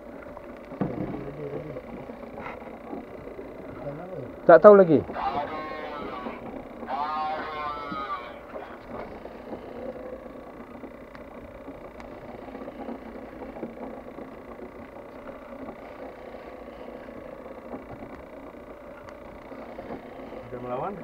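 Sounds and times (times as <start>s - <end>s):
boat engine drone: 0.0s - 21.0s
water noise: 0.0s - 21.0s
faint clicks: 0.1s - 3.8s, 7.8s - 20.5s.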